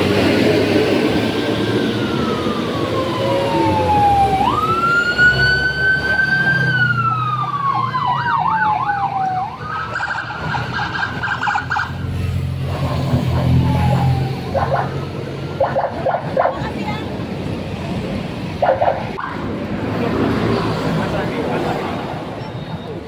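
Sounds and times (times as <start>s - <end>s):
electronic siren wailing: 1.2s - 12.0s, 13.3s - 16.4s.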